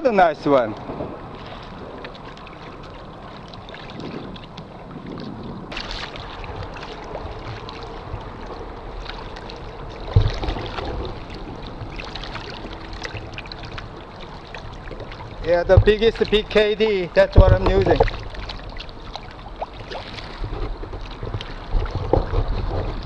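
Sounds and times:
water lapping against kayak hull: 0.0s - 23.0s.

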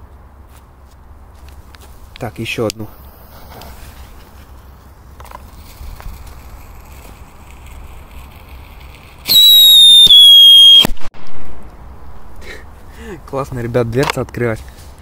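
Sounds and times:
firecracker sharp crack: 5.2s - 11.7s
firecracker high whistle: 9.2s - 11.0s.

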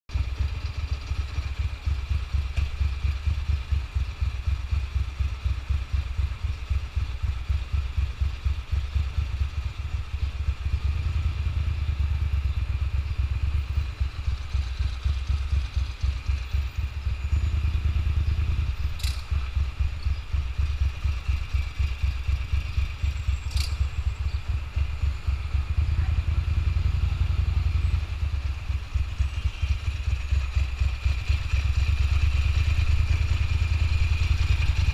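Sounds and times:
motorcycle engine throbbing: 0.1s - 34.9s
sharp clicks: 19.0s - 19.5s.

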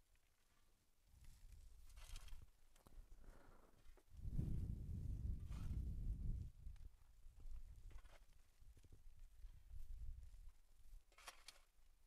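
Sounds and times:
faint low rumble: 4.1s - 7.8s.

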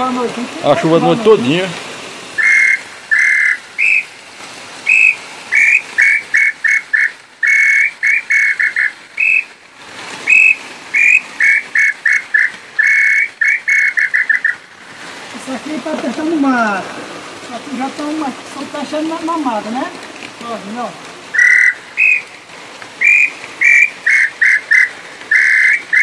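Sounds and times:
wooden bird call whistling: 2.4s - 4.2s, 4.8s - 9.6s, 10.2s - 14.6s, 21.3s - 22.3s, 23.0s - 26.0s.

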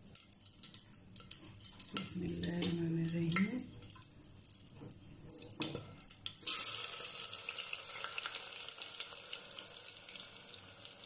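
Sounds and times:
onions sizzling in hot oil: 6.3s - 11.0s.

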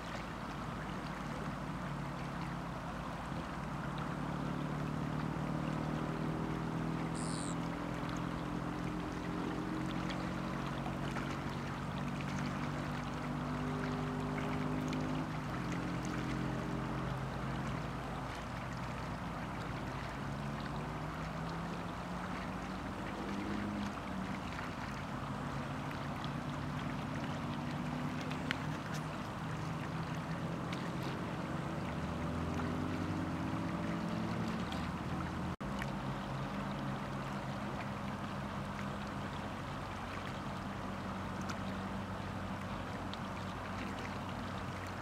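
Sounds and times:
water and wind noise: 0.0s - 45.0s
distant motor droning: 0.1s - 45.0s
high chirp: 7.2s - 7.6s.

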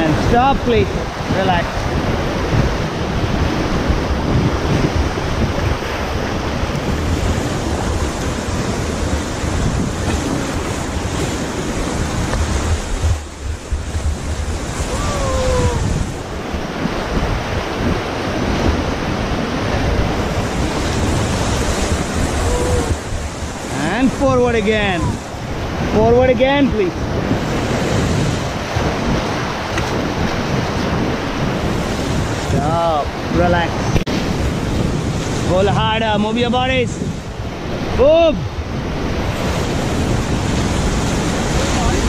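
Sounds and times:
whitewater rushing loudly: 0.0s - 42.0s
wind buffeting microphone: 0.0s - 42.0s.

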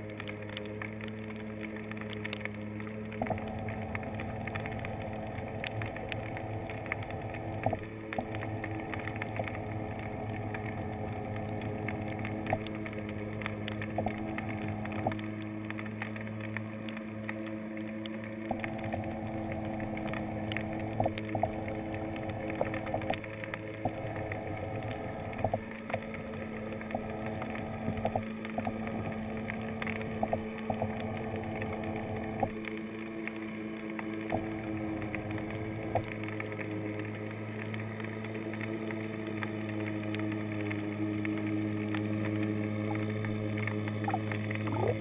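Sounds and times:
underwater motor hum: 0.0s - 45.0s
sharp clicks: 0.1s - 36.4s, 41.2s - 45.0s.

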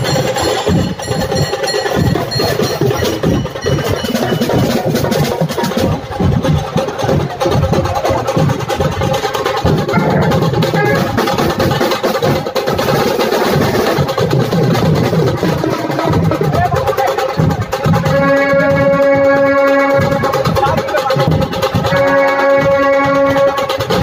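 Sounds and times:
held pitched tone: 0.0s - 5.6s
barrel drums beating: 0.0s - 24.0s
kettle drums rattling: 0.0s - 24.0s.

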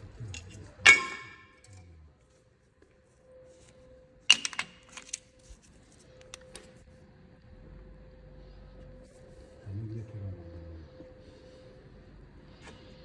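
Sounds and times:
faint steady hum: 0.0s - 13.0s
sharp metallic clinks: 0.4s - 1.8s.

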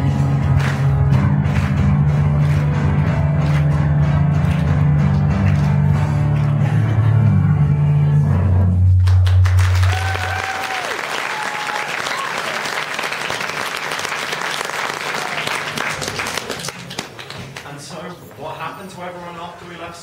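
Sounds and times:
audience applauding and cheering: 0.0s - 7.2s, 9.0s - 17.7s
whoops from audience: 9.8s - 12.7s.

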